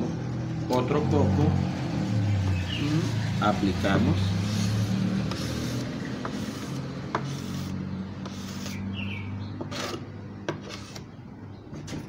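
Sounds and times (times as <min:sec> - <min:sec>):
metal spatula scraping wood: 0:04.2 - 0:09.0, 0:09.6 - 0:11.1.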